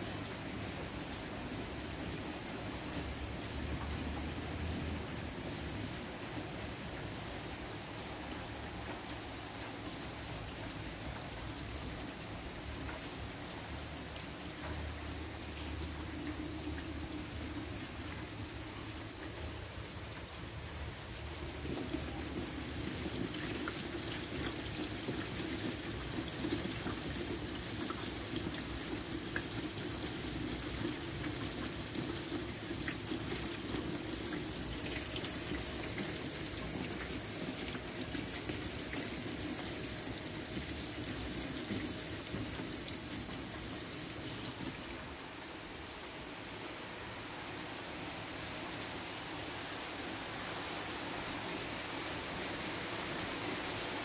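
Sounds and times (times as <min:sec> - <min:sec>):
rain splashing into puddles: 0:00.0 - 0:54.0.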